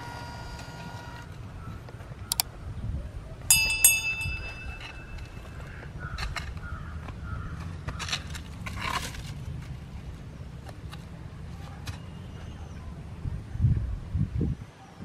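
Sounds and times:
hoe chopping and scraping soil: 0:06.2 - 0:09.8.

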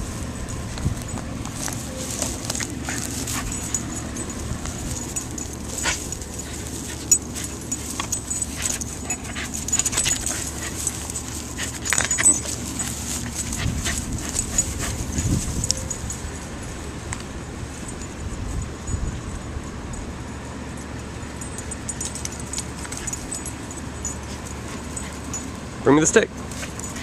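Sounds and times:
clicks and rustles: 0:00.4 - 0:16.4
dog panting and whimpering: 0:00.4 - 0:16.4, 0:22.0 - 0:27.0.

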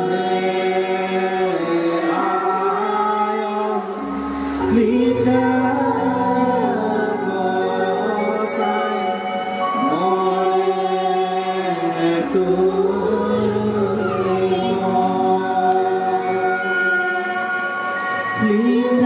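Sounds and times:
steady low drone: 0:00.0 - 0:19.0.

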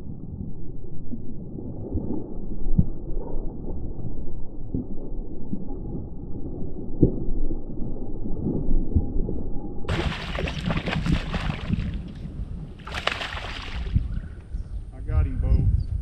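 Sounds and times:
low muffled rumble: 0:00.0 - 0:16.0
fish splashing at water surface: 0:09.9 - 0:12.2, 0:12.8 - 0:14.0.

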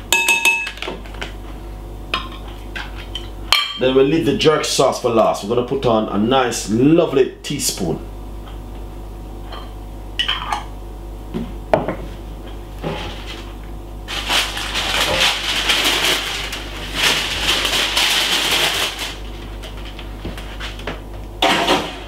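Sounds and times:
jars clicking and knocking: 0:00.2 - 0:00.9.

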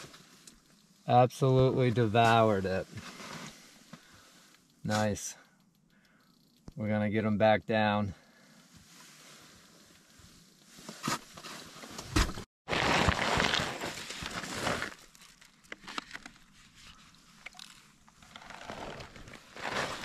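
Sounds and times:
snow crunching under person: 0:12.7 - 0:15.2, 0:18.2 - 0:20.0.

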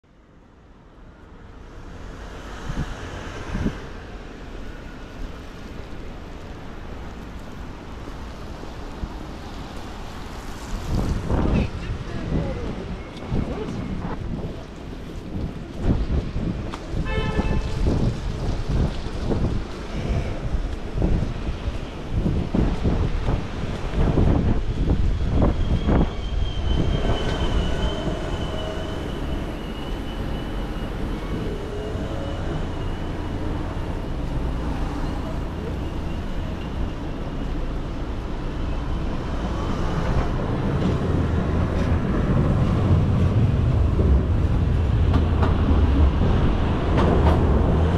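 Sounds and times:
distant traffic rush: 0:00.2 - 0:47.9
high-pitched squeal: 0:25.2 - 0:37.5.

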